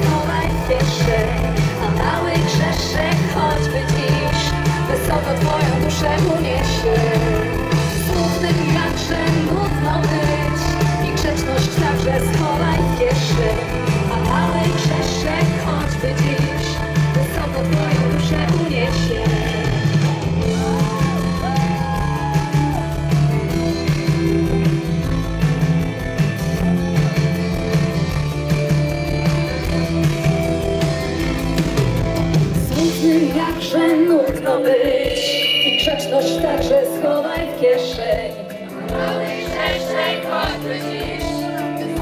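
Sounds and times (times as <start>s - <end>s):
people singing: 0.0s - 19.7s, 33.2s - 42.0s
pop-rock band playing: 0.0s - 42.0s.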